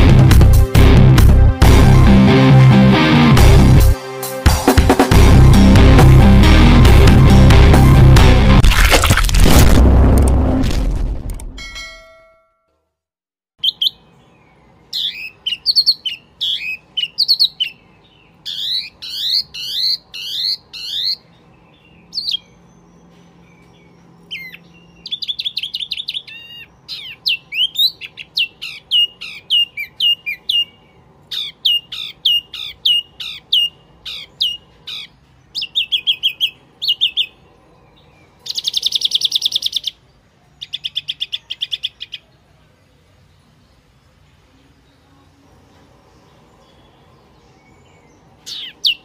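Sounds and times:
bird call chirping: 13.6s - 42.5s, 44.3s - 49.0s.

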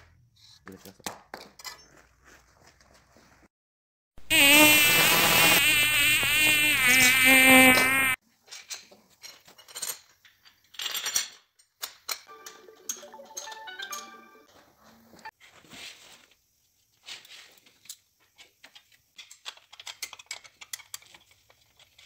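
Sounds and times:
electric grinder whining on steel: 4.4s - 8.2s.

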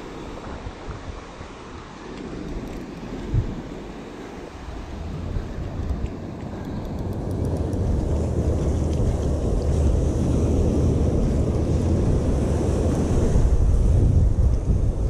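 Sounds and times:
wind buffeting microphone: 0.0s - 15.0s
surf breaking: 7.6s - 15.0s.

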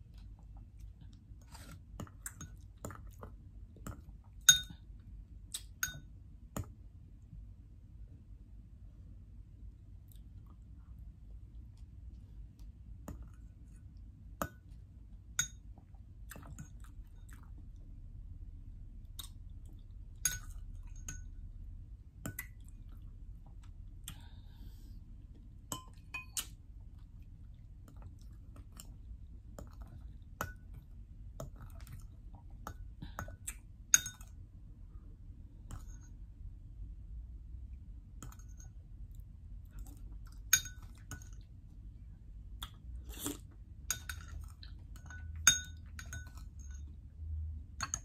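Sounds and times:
metal spoon clinking on glass bowl: 4.4s - 4.8s, 5.8s - 6.1s, 15.4s - 15.6s, 20.2s - 21.4s, 25.7s - 26.4s, 33.9s - 34.4s, 40.5s - 41.3s, 45.0s - 46.9s.

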